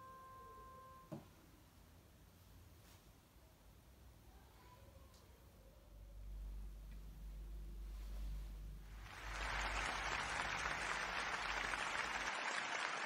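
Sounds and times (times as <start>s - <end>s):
applause: 8.9s - 13.0s.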